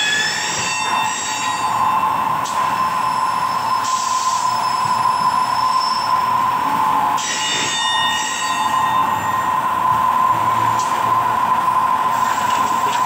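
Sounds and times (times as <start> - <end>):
cutter squealing against metal: 0.0 - 2.0, 7.2 - 9.4
milling machine whine: 0.0 - 13.0.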